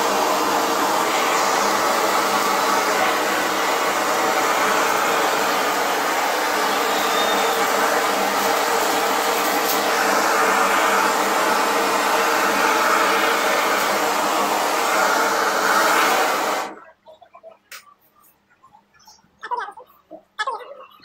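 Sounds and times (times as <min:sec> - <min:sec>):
blowtorch flame hissing: 0:00.0 - 0:16.8.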